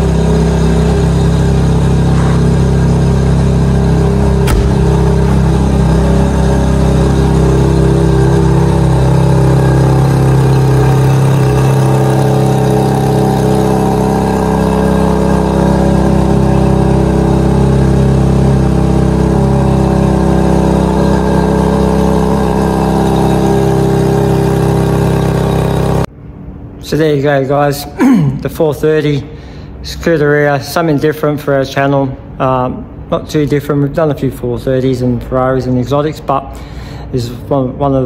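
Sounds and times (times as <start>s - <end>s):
car engine idling: 0.0s - 26.1s.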